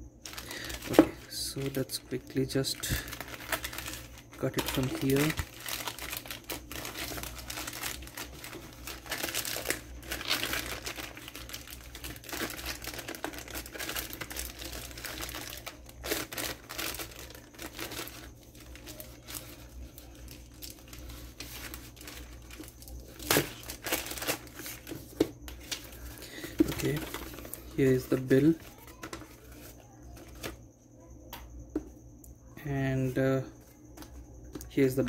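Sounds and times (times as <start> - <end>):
plastic bag crinkling and tearing: 0.2 - 30.6.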